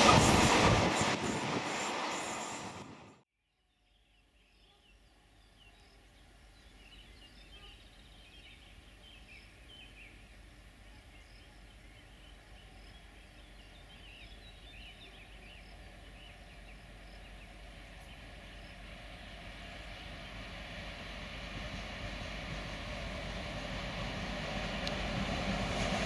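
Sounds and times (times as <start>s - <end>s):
train rumble: 0.0s - 3.2s, 9.5s - 26.0s.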